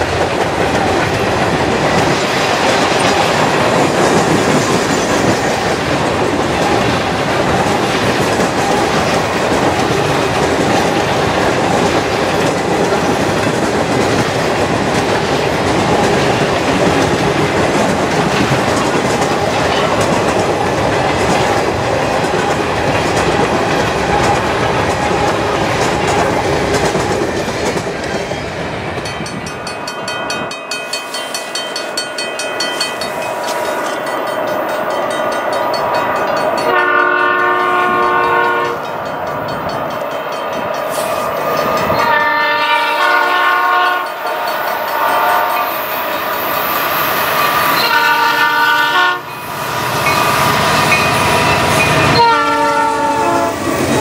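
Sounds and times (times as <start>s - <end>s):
train wheels clattering over rail joints: 0.0s - 29.8s
locomotive horn blasts: 36.6s - 38.9s, 42.0s - 45.8s, 47.8s - 49.3s, 52.0s - 53.6s.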